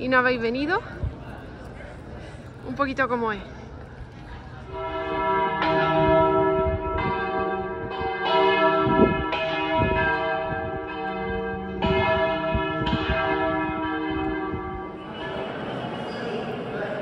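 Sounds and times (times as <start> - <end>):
church bells ringing: 4.6 - 17.0.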